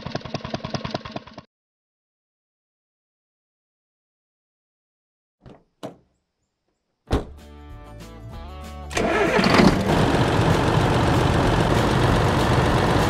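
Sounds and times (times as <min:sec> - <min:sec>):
cartoon tractor engine running: 0:00.0 - 0:01.5, 0:08.9 - 0:13.0
music: 0:07.1 - 0:13.0.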